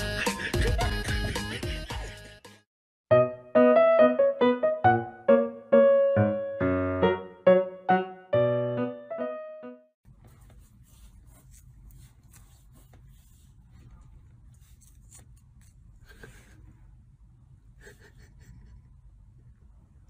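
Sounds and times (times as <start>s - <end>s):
low steady room rumble: 13.1s - 20.0s.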